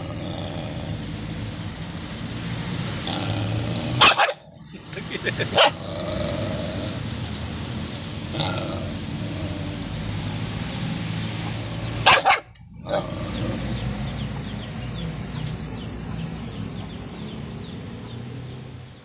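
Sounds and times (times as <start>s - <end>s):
dog growling low: 0.0s - 1.3s, 3.0s - 4.8s, 5.7s - 7.1s, 8.3s - 10.0s, 12.7s - 13.9s
dog barks: 4.0s - 4.5s, 5.4s - 5.8s, 12.0s - 13.0s.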